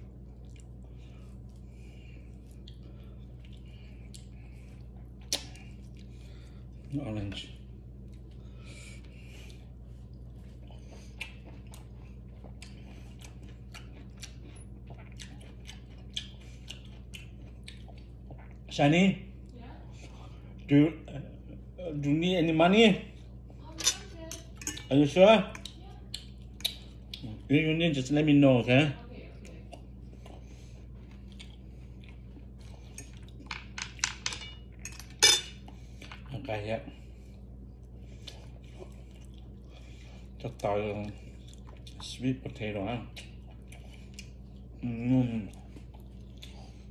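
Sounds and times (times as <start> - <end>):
steady low hum: 0.0 - 46.9
chewing clicks and crackles: 9.0 - 18.7, 25.5 - 27.5, 29.4 - 36.3, 37.8 - 42.2, 43.0 - 44.8, 45.4 - 46.9.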